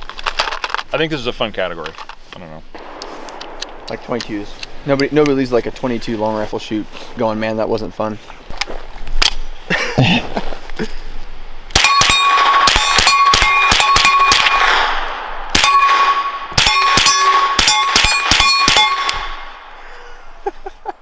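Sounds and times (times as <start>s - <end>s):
suppressed gunshots: 2.8s - 5.4s
steel target ringing: 11.8s - 19.7s.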